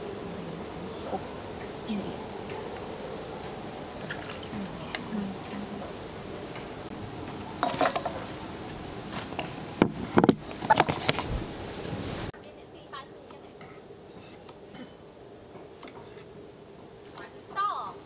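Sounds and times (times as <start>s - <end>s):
steady background hiss: 0.0s - 18.0s
clunks and clinks in steel bowl: 7.6s - 8.2s.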